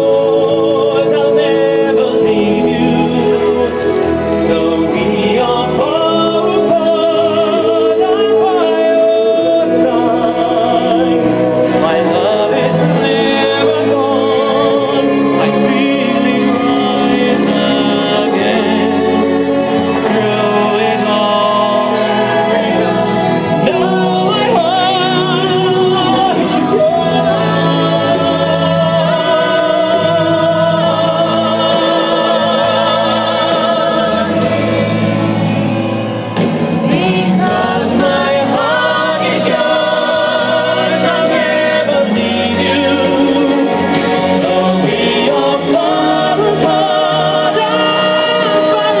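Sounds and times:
backing singers: 0:00.0 - 0:49.0
instrumental accompaniment: 0:00.0 - 0:49.0
tenor singing with vibrato: 0:00.0 - 0:49.0.

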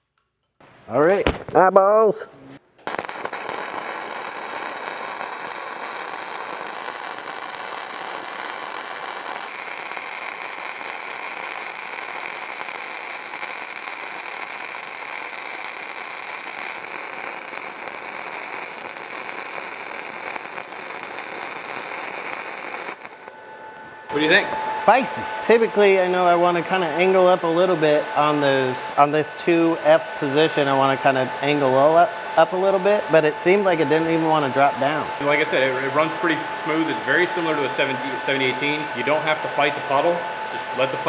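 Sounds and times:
welding arc crackling: 0:02.8 - 0:23.4.

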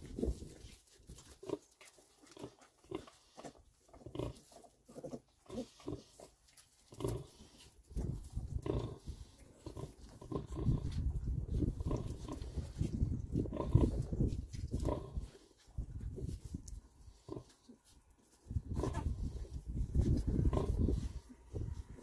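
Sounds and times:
pig grunting: 0:02.2 - 0:06.3, 0:08.5 - 0:15.4, 0:18.7 - 0:19.4, 0:20.2 - 0:21.3.

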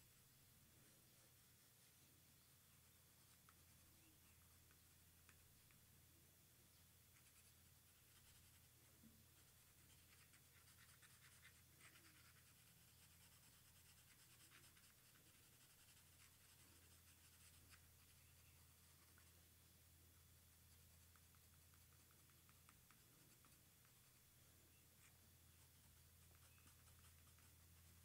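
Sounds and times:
low steady hum: 0:00.0 - 0:28.0
pencil scratching on paper: 0:07.2 - 0:08.7, 0:09.4 - 0:19.4, 0:20.7 - 0:24.2, 0:25.0 - 0:28.0.

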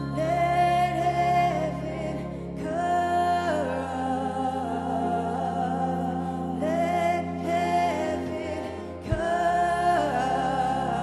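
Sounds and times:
sustained keyboard chords: 0:00.0 - 0:11.0
women singing into microphones: 0:00.0 - 0:11.0.

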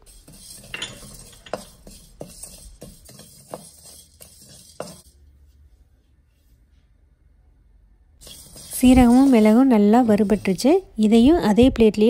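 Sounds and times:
wooden spatula scraping metal pan: 0:00.0 - 0:05.1, 0:08.2 - 0:10.8.

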